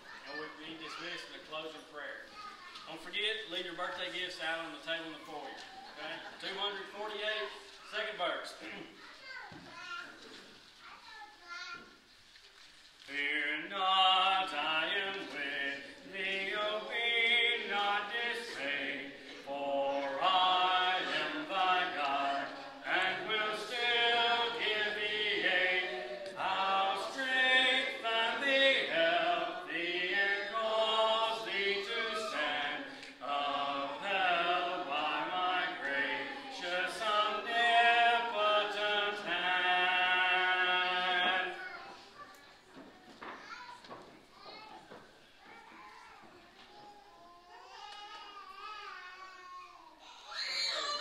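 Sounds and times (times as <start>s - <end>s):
congregation singing a hymn: 13.0s - 41.8s.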